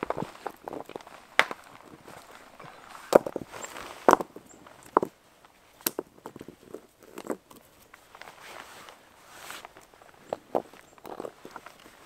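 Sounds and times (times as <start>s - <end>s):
footsteps on dry grass: 0.0s - 4.8s
stones clacking on rock: 0.0s - 8.4s, 9.6s - 12.0s.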